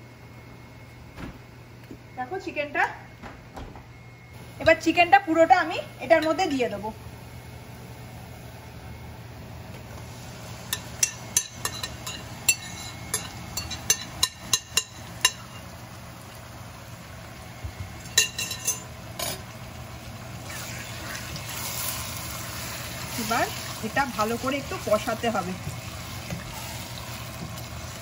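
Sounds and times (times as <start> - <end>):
cooking hiss: 9.5 - 28.0
utensils clinking against cookware: 10.7 - 15.7, 18.1 - 19.4.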